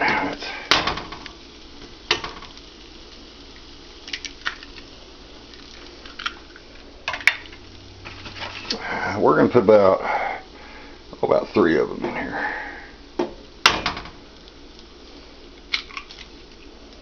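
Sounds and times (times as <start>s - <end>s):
sausage sizzling: 0.0s - 17.0s
eggs tapping on skillet rim: 0.7s - 2.6s, 4.0s - 4.9s.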